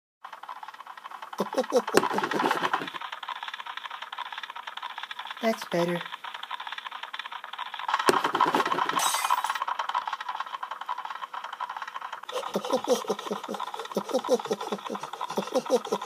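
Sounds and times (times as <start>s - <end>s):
sharp clatter: 0.2s - 16.0s
pattering footsteps: 1.3s - 11.0s.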